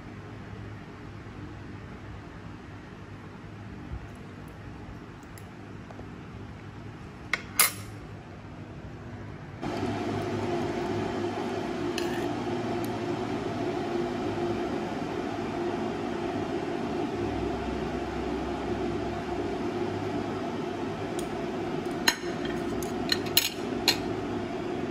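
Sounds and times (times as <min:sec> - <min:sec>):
machine hum: 0:09.0 - 0:24.9.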